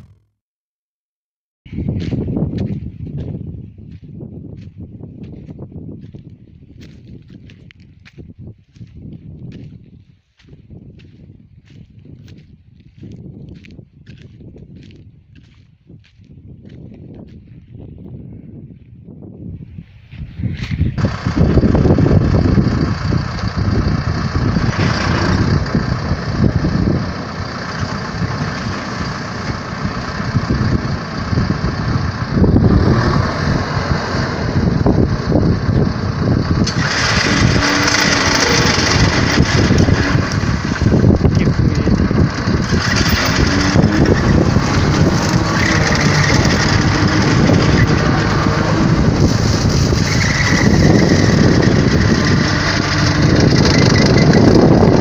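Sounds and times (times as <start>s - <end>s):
mulcher rotor shredding: 20.5s - 55.0s
tractor engine under load: 20.6s - 55.0s.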